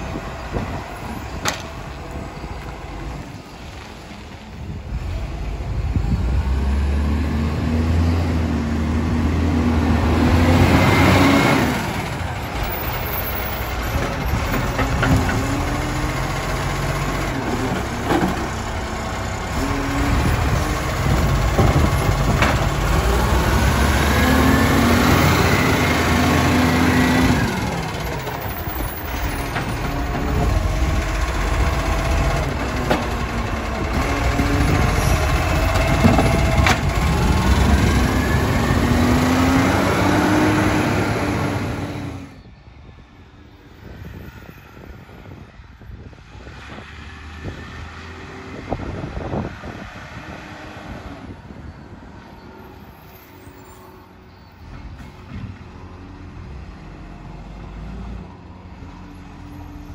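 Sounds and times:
distant truck running: 0:00.0 - 0:42.4
garbage truck diesel engine: 0:00.0 - 0:43.0, 0:46.7 - 0:59.9.

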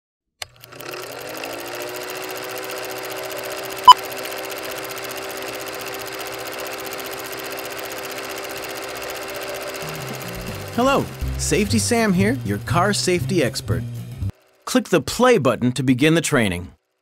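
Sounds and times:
film projector running: 0:00.4 - 0:13.6, 0:14.3 - 0:15.0
short loud beep: 0:03.8 - 0:04.1.

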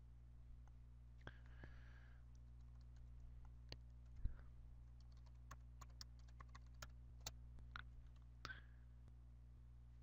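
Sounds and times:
low electrical hum: 0:00.0 - 0:10.0
keyboard typing: 0:02.3 - 0:04.2, 0:04.8 - 0:07.4.

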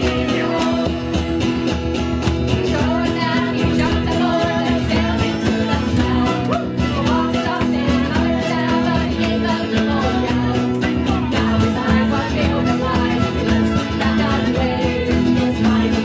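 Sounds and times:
women singing: 0:00.0 - 0:01.6, 0:02.3 - 0:16.0
live band with guitars and fiddle: 0:00.0 - 0:16.0.

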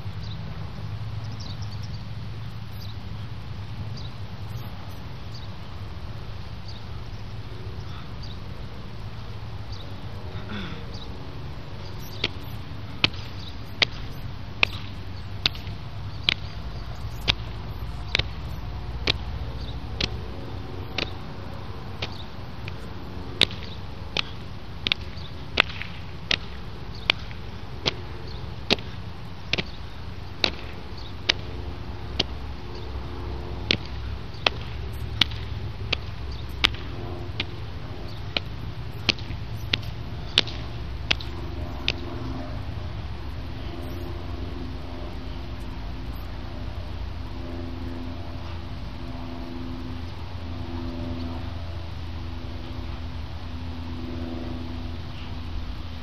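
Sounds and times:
sharp slapping strikes: 0:12.1 - 0:20.2, 0:20.9 - 0:21.2, 0:22.0 - 0:28.1, 0:28.7 - 0:29.8, 0:30.4 - 0:32.4, 0:33.7 - 0:42.4.

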